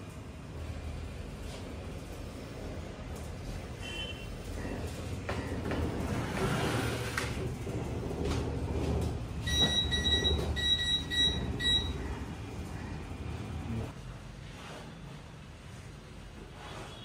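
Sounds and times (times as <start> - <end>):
low machine rumble: 4.3 - 14.0
short electronic beeps: 9.5 - 12.0.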